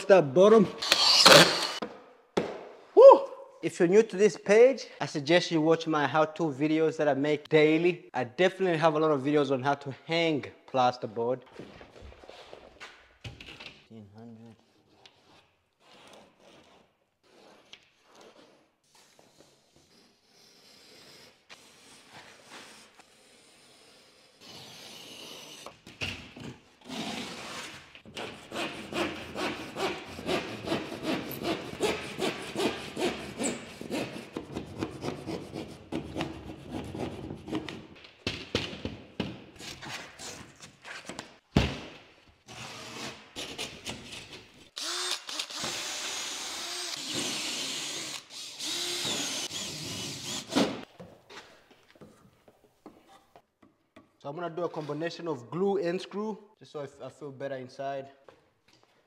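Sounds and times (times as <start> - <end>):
cordless drill with hole saw: 0.8 - 1.8, 44.8 - 50.9
saw cutting plasterboard: 0.8 - 1.8, 26.8 - 37.8, 42.5 - 50.9.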